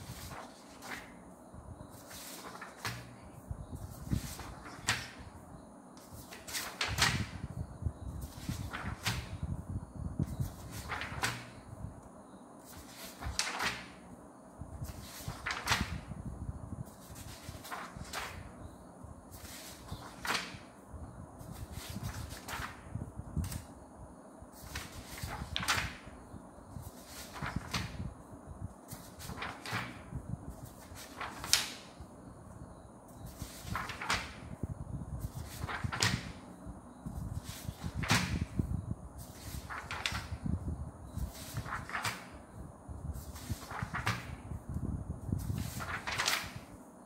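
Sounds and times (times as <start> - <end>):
paper sheets swishing: 0.0 - 1.2, 1.9 - 3.2, 3.8 - 5.4, 6.0 - 7.5, 8.2 - 9.5, 10.3 - 11.7, 12.6 - 14.1, 14.8 - 16.2, 16.9 - 18.6, 19.3 - 20.7, 21.4 - 23.7, 24.6 - 26.2, 26.8 - 28.1, 28.9 - 32.0, 33.2 - 34.6, 35.2 - 36.6, 37.2 - 40.4, 41.2 - 42.5, 43.2 - 44.6, 45.4 - 46.8.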